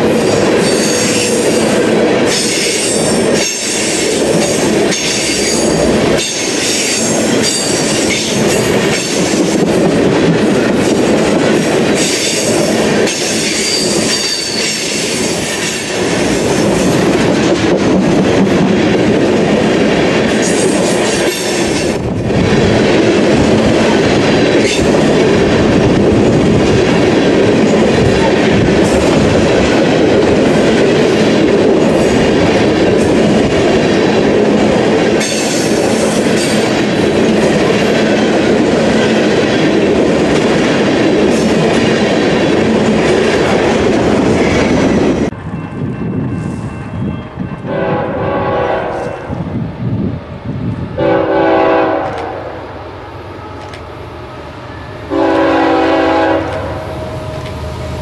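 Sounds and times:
distant locomotive horn: 47.0 - 49.4, 51.0 - 58.0.

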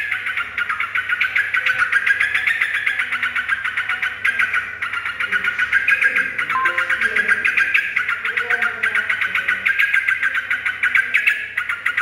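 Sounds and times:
bird chirping: 0.2 - 8.4.

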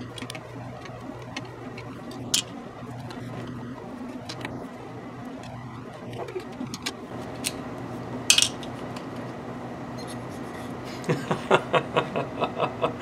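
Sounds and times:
faint steady hum: 0.0 - 13.0
screwdriver clinking on metal plate: 8.3 - 9.2.

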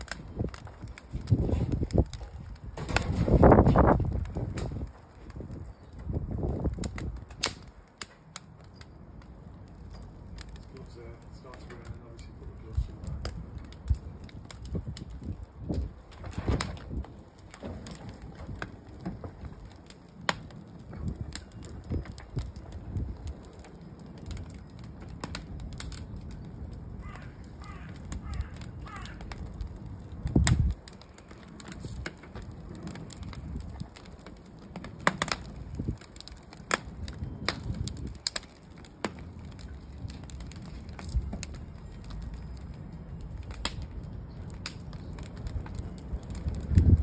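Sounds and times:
wind rumble on microphone: 0.0 - 7.8, 9.0 - 38.5, 39.1 - 47.0
fire crackling and popping: 0.0 - 47.0.

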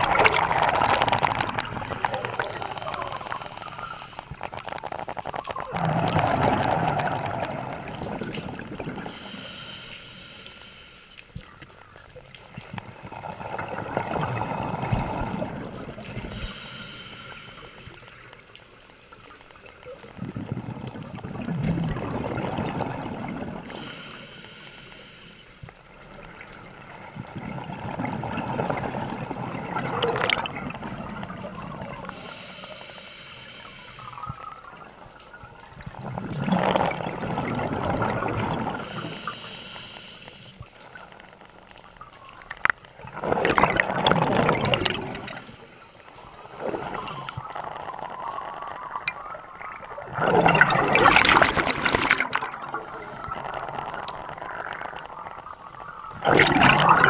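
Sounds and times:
exhaled bubbles rushing: 0.0 - 9.2, 12.1 - 16.5, 20.0 - 23.8, 26.1 - 32.3, 34.4 - 39.2, 42.8 - 45.6, 46.2 - 57.0
regulator inhale hiss: 1.9 - 4.5, 9.0 - 11.5, 16.1 - 18.2, 23.7 - 25.8, 32.0 - 34.7, 38.8 - 40.9, 45.2 - 47.5, 52.6 - 53.5.

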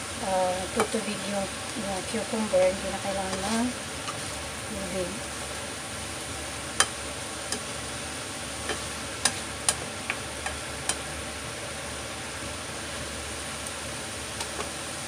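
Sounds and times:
food sizzling in frying pan: 0.0 - 15.0
spatula tapping pan: 0.7 - 1.0, 2.6 - 4.2, 6.7 - 7.7, 8.6 - 11.1.

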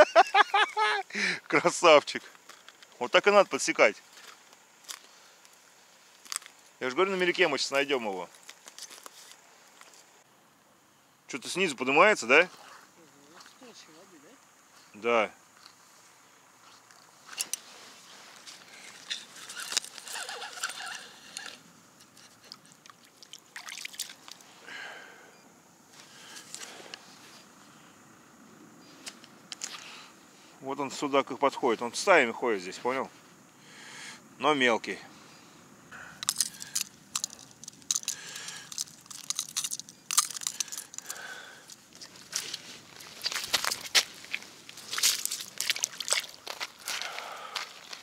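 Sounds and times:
ice crunching: 17.3 - 21.6, 36.2 - 48.0
water sloshing and splashing: 22.3 - 24.5, 43.2 - 47.0.

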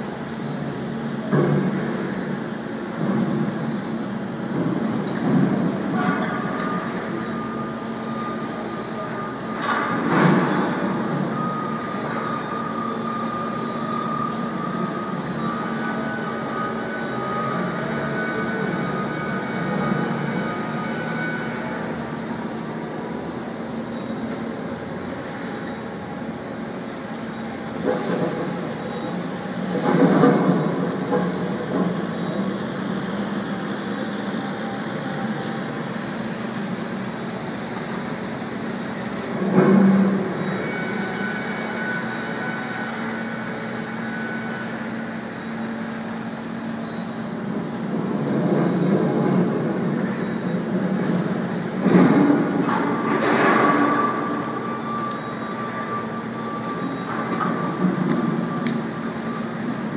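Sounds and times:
electric forklift motor whine: 10.7 - 27.8, 32.3 - 47.8.

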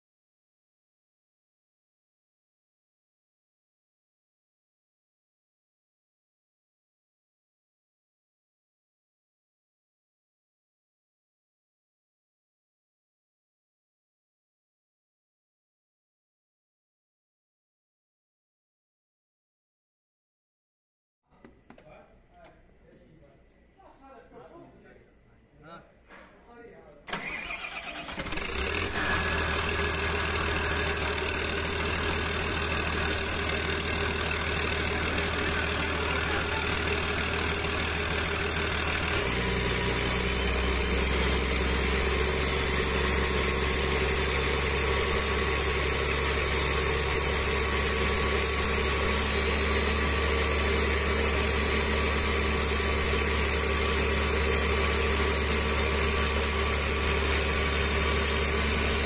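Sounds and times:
diesel engine starting and idling: 27.1 - 59.0.

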